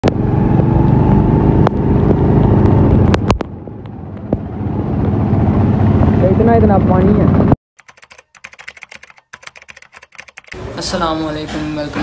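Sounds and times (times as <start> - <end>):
motorcycle engine running: 0.0 - 7.6
sharp clicks: 7.8 - 10.6.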